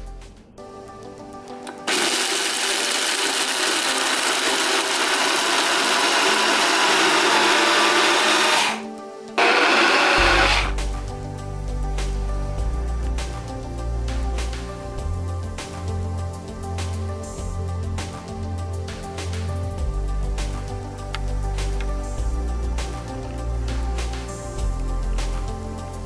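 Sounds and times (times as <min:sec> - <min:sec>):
background music: 0:00.0 - 0:26.0
blender grinding: 0:01.8 - 0:10.8.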